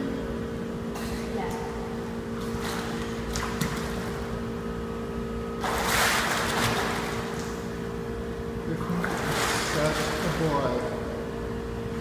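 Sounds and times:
steady low hum: 0.0 - 12.0
swimmer splashing water: 2.4 - 4.5, 5.6 - 7.8, 8.6 - 11.2.

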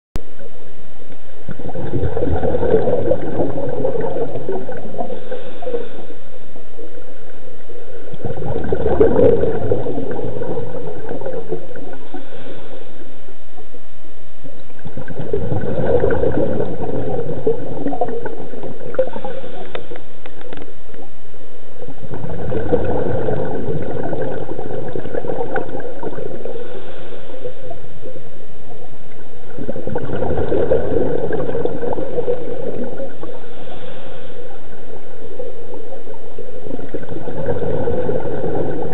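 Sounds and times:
steady regulator hiss: 0.4 - 38.9
regulator exhaled bubbles gurgling: 1.4 - 13.0, 14.5 - 21.1, 21.7 - 38.9.

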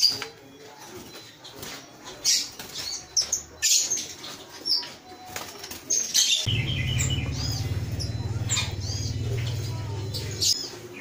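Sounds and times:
lovebirds chirping and squawking: 0.0 - 11.0
steady low hum: 6.5 - 10.6.

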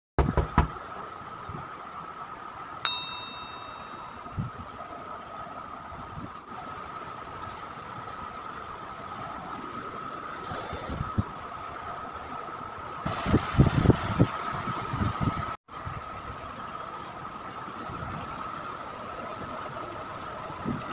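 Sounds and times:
sharp knocks: 0.2 - 0.8
metallic clang: 2.9 - 4.2
constant high tone: 2.9 - 4.4.

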